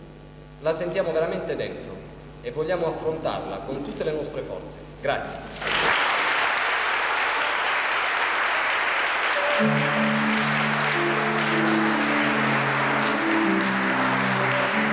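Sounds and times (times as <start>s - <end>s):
audience applauding: 5.6s - 14.9s
music of held notes: 9.4s - 14.9s.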